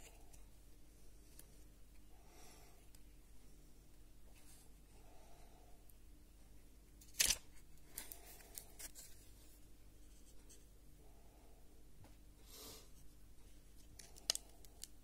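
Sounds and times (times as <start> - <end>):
soft plastic rustle: 7.0 - 10.7.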